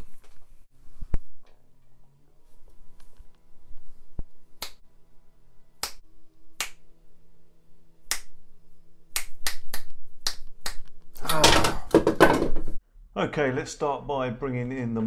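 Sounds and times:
fingers snapping: 4.6 - 4.8, 5.8 - 6.0, 6.6 - 6.8, 8.0 - 8.4, 9.1 - 11.1.

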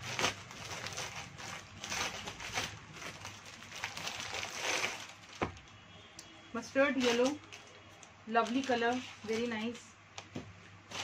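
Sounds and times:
plastic packaging crinkling: 0.0 - 5.6, 6.9 - 9.8.

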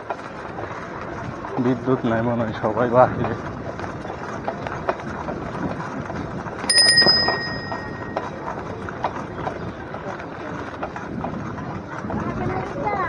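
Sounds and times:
bicycle bell ringing: 6.7 - 8.2.

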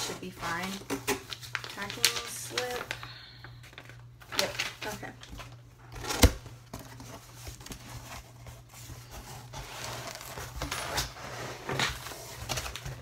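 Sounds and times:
packing paper crinkling: 0.0 - 10.6.

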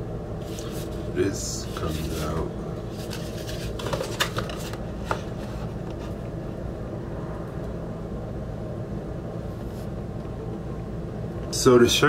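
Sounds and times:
low room hum: 0.0 - 12.0
cardboard box handled: 1.7 - 6.2.

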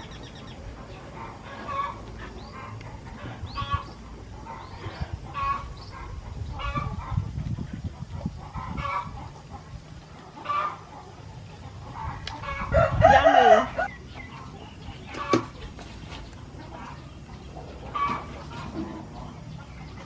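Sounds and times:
chickens clucking: 0.0 - 20.0.

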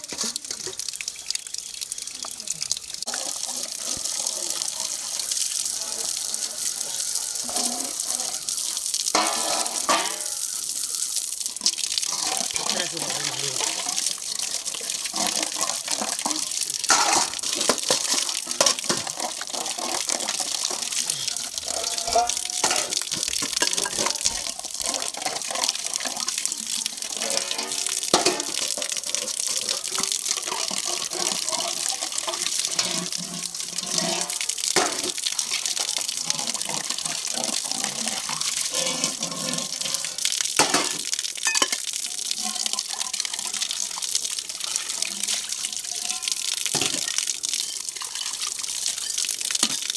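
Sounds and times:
water splashing onto concrete: 0.0 - 49.9
metal dishes clinking: 9.1 - 10.5, 13.6 - 19.4, 20.6 - 25.5, 27.1 - 33.0, 40.6 - 41.8, 45.9 - 48.4.

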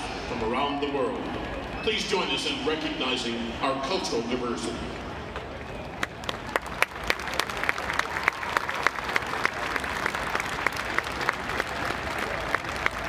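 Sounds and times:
stadium crowd applauding: 5.3 - 13.0.

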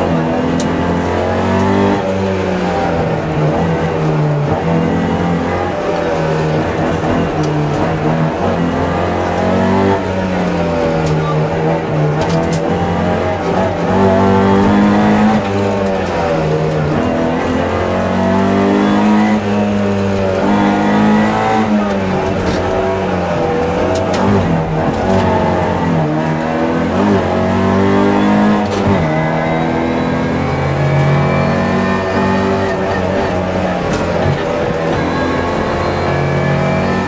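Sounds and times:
car engine revving hard: 0.0 - 37.0.

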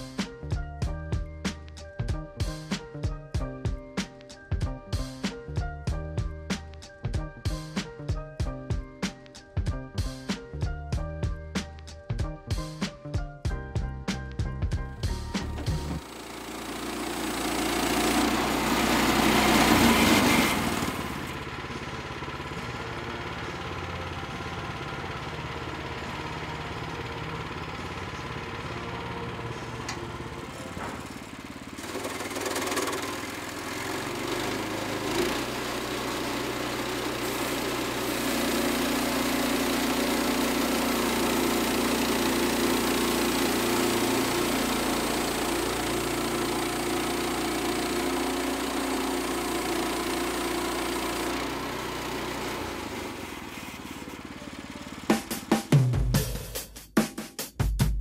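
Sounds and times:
bandsaw mill engine cutting log: 14.9 - 55.9.

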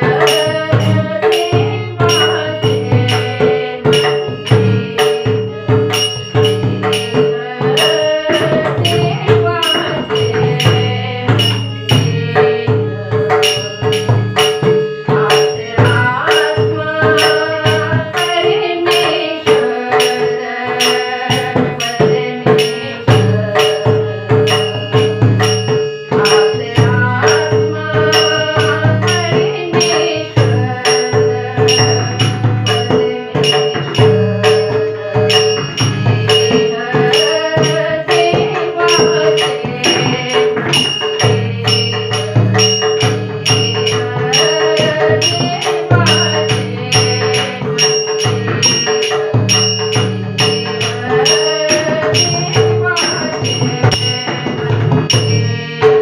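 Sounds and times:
harmonium drone: 0.0 - 56.0
jingling metallic percussion: 0.0 - 56.0
woman singing devotional song: 0.0 - 56.0.

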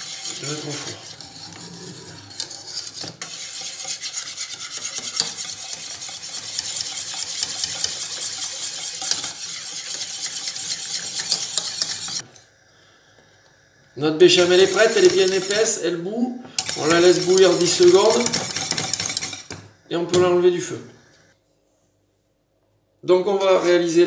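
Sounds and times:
whisk scraping a metal saucepan: 0.0 - 12.3, 14.2 - 15.8, 16.5 - 20.4.

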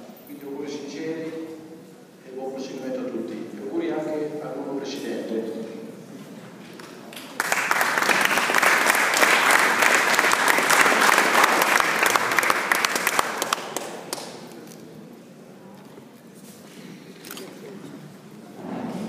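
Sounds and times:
audience applauding: 6.8 - 14.4.

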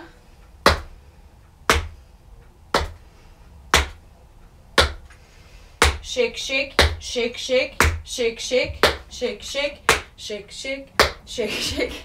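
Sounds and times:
tap shoes striking hard floor: 3.7 - 4.0, 4.8 - 5.1, 8.6 - 9.0, 9.9 - 10.1.

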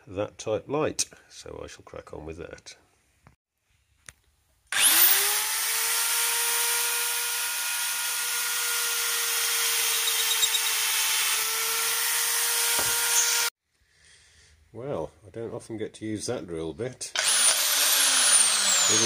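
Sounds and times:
drill press motor whining: 4.8 - 8.4, 9.0 - 11.5, 17.2 - 19.0
drill bit drilling into metal: 4.8 - 11.5, 17.2 - 19.0.

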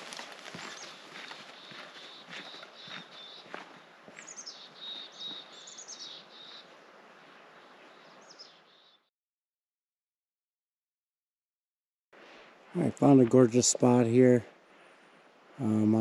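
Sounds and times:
footsteps on dirt trail: 0.0 - 6.2
steady outdoor hiss: 0.0 - 9.0, 12.2 - 16.0
songbirds singing: 0.0 - 9.1.

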